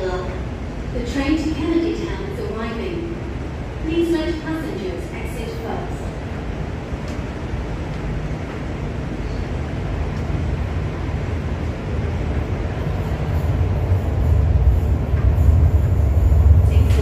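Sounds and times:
train rumble and hum: 0.0s - 17.0s.

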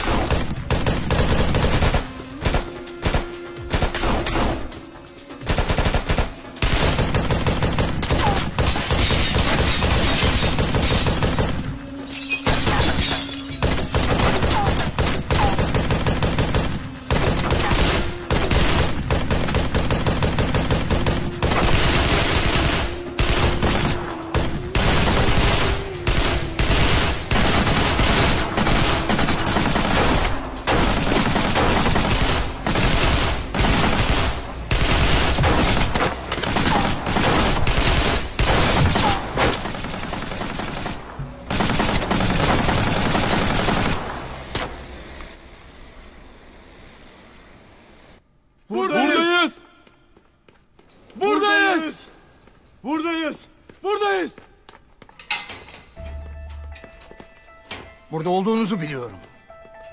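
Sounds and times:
automatic gunfire: 13.6s - 44.0s.

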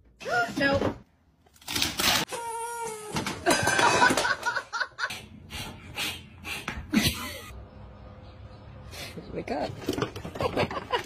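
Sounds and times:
person laughing: 6.9s - 7.6s.

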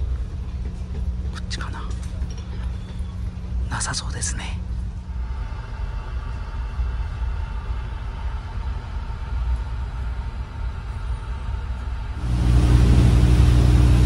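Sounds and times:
ferry engines droning: 4.6s - 14.0s.

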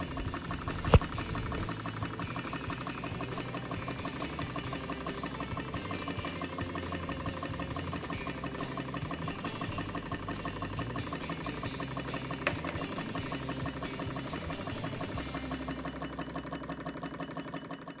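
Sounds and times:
sharp click: 0.0s - 5.2s
toy engine mechanical clatter: 0.0s - 18.0s.

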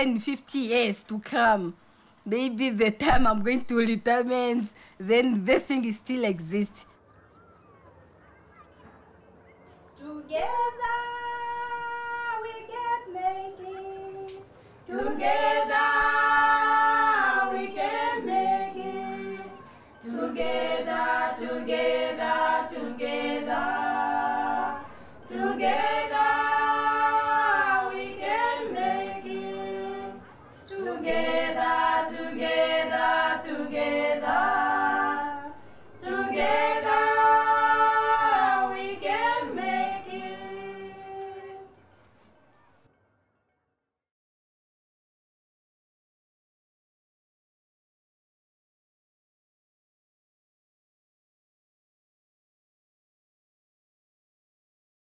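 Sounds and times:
a cappella choir singing: 10.0s - 41.8s.

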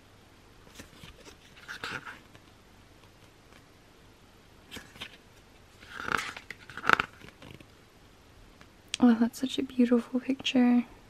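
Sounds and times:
pages turning: 0.7s - 3.7s, 4.7s - 7.7s.

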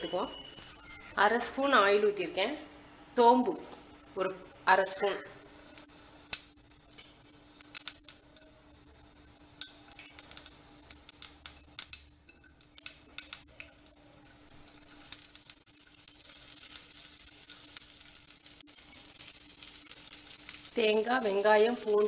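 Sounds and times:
seeds sizzling in hot oil: 4.9s - 22.0s.

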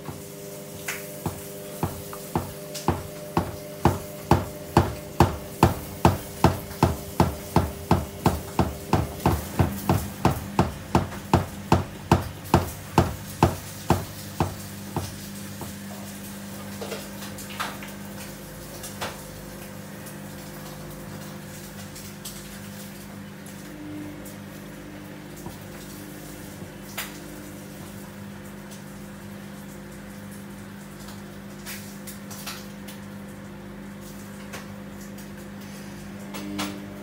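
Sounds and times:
washing machine drum thumping: 0.0s - 16.1s
washing machine motor hum: 0.0s - 37.0s.

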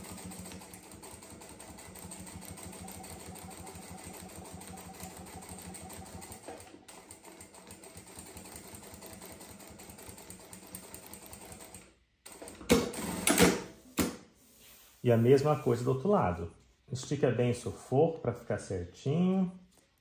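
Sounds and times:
sewing machine stitching: 0.0s - 13.6s.

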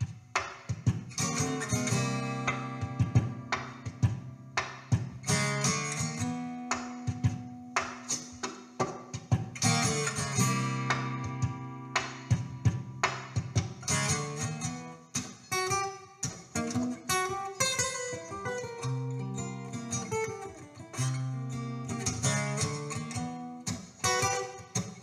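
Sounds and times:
acoustic guitar chords: 0.0s - 25.0s.

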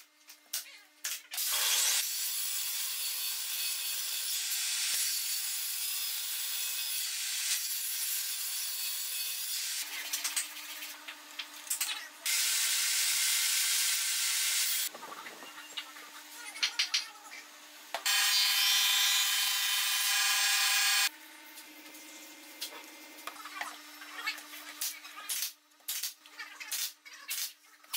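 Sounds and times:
table saw cutting wood: 1.4s - 10.0s, 12.2s - 14.9s, 17.9s - 21.1s.

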